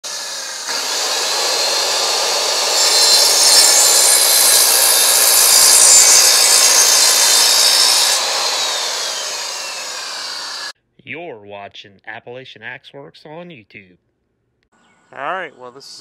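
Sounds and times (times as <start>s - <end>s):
circular saw cutting wood: 0.0s - 10.8s.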